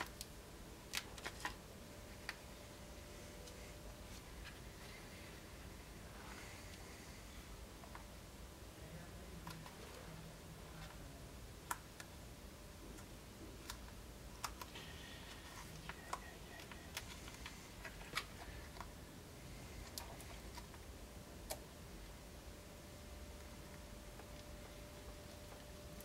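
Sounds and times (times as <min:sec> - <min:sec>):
paper and tape handling clicks: 0:00.9 - 0:01.6.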